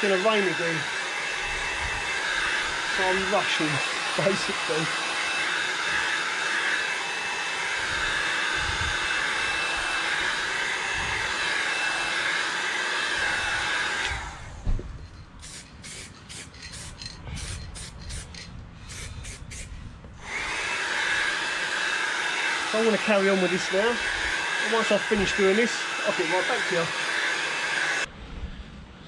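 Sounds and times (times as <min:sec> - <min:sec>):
aerosol can spraying: 0:00.0 - 0:08.5, 0:15.4 - 0:19.7
heat gun fan hiss: 0:00.0 - 0:14.6, 0:15.4 - 0:28.1.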